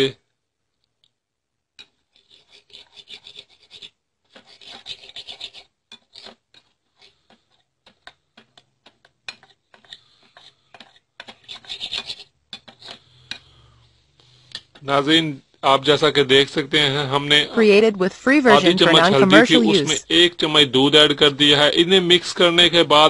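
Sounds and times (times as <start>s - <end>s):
spoon scraping in a bowl: 1.8s - 7.6s, 9.2s - 13.6s.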